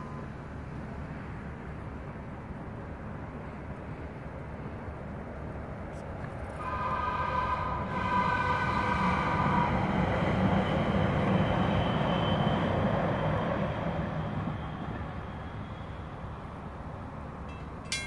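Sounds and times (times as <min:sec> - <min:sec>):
train wheels on rails: 0:05.4 - 0:18.0
train horn chord: 0:06.6 - 0:09.4.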